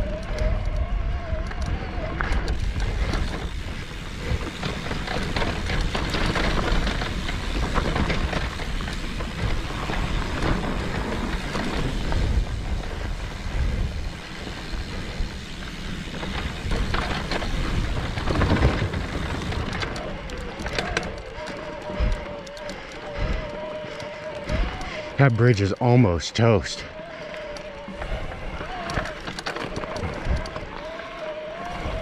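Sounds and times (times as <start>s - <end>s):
tyres rolling over dirt and rock: 0.0s - 25.6s, 26.2s - 32.0s
bike rattling: 0.0s - 32.0s.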